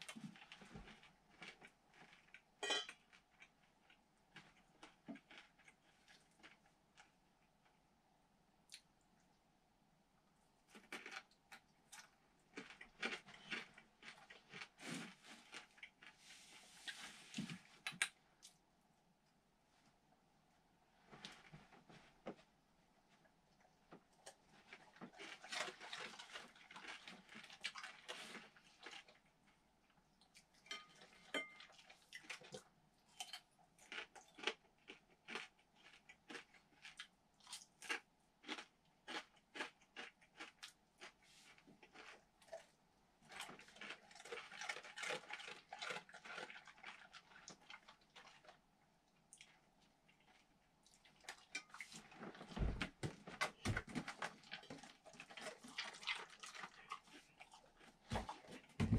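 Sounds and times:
person chewing crunchy food: 0.0 - 7.2, 10.6 - 16.3, 24.1 - 29.6, 30.2 - 48.7, 49.3 - 58.9.

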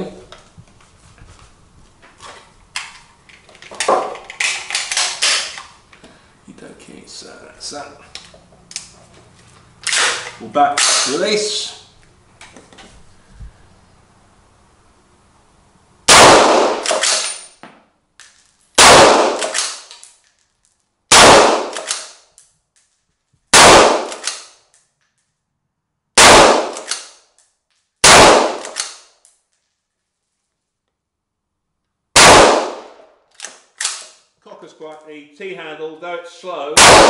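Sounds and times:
rifle shots with echo: 16.1 - 17.4, 18.8 - 19.9, 21.1 - 22.2, 23.5 - 24.5, 26.2 - 27.2, 28.0 - 29.0, 32.2 - 33.0, 36.8 - 37.0.

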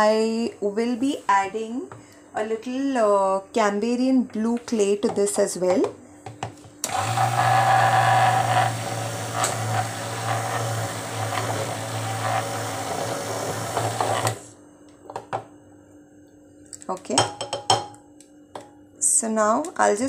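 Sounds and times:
stick blender running: 6.8 - 14.5.

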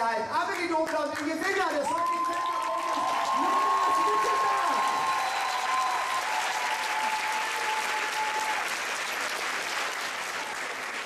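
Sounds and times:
audience applauding: 0.5 - 11.0.

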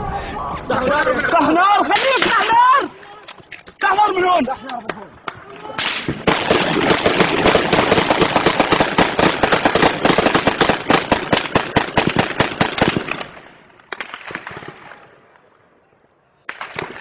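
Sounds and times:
automatic gunfire: 5.8 - 13.3.

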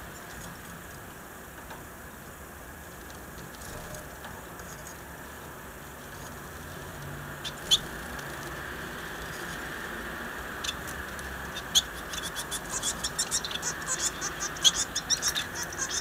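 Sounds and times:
steady background hiss: 0.0 - 16.0
finches chirping: 7.4 - 8.0, 10.4 - 16.0.

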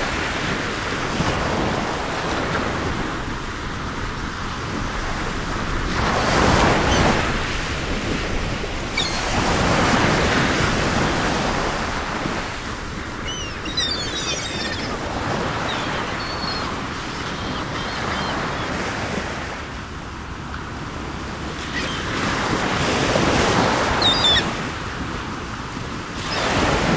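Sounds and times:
ocean waves breaking on shore: 0.0 - 26.9
faint high chirps: 13.2 - 15.0.

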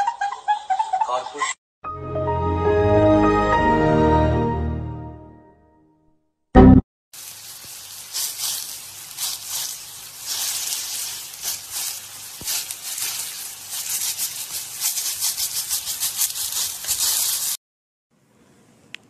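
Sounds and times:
meat sizzling in hot oil: 7.1 - 17.6.

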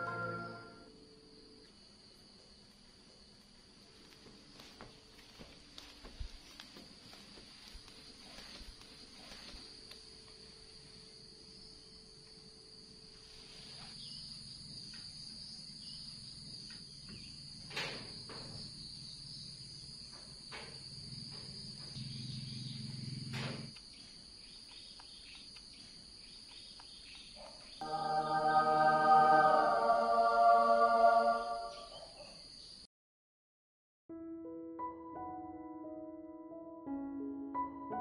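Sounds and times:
background music: 0.0 - 1.0, 27.8 - 31.9, 34.1 - 38.0
insects droning: 0.0 - 32.9.

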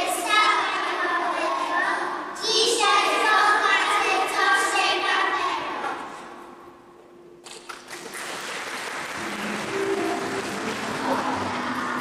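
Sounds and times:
applause: 7.5 - 12.0.

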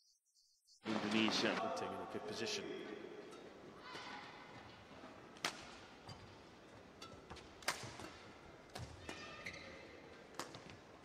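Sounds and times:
badminton racket hitting shuttlecock: 5.4 - 11.0.

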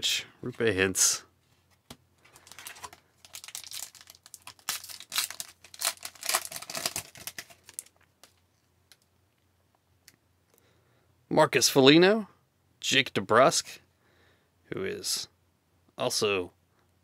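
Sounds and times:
card pack wrapper tearing and crinkling: 2.3 - 9.0.

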